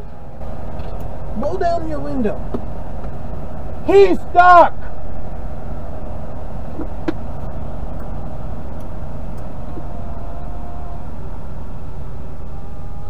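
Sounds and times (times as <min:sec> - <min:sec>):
diesel truck engine idling: 0:00.0 - 0:12.9.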